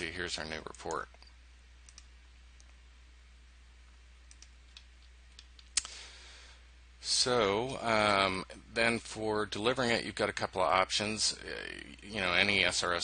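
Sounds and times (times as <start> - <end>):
steady low hum: 0.0 - 13.0
computer mouse clicks: 0.8 - 2.8, 4.3 - 5.9.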